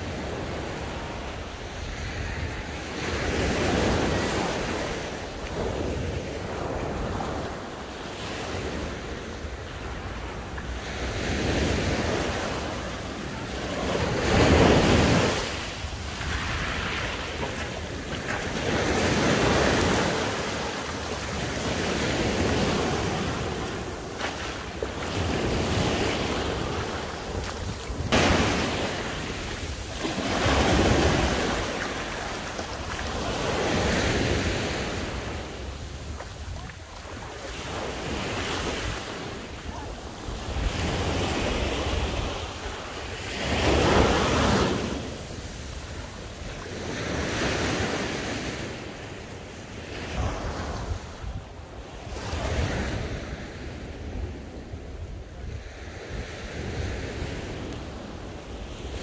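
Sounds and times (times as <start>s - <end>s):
wind buffeting microphone: 0.0s - 42.8s
sea waves washing onto shore: 0.0s - 59.0s.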